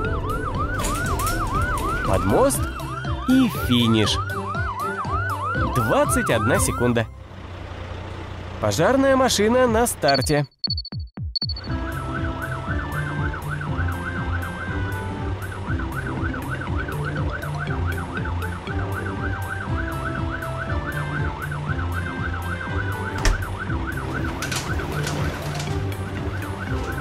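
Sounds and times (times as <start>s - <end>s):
cartoon siren warbling: 0.0s - 7.0s, 11.6s - 27.0s.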